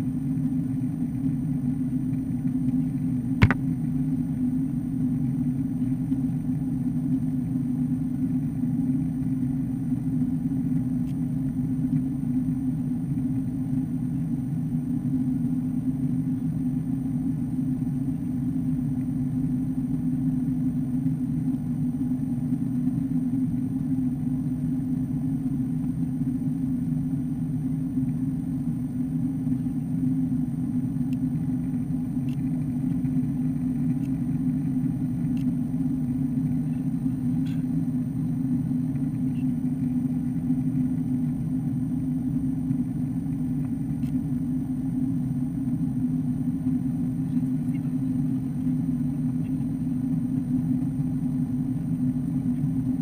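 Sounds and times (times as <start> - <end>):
jet engine cabin drone: 0.0 - 53.0.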